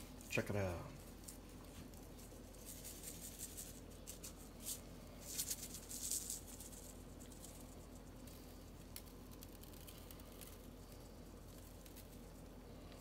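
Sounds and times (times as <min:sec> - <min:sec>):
shaker bottle rattling: 0:02.5 - 0:08.0.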